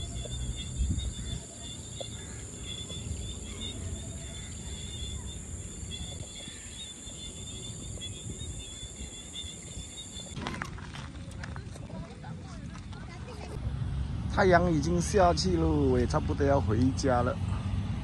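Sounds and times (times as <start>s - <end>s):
bird chirps: 0.0s - 10.4s
insects droning: 0.0s - 10.4s.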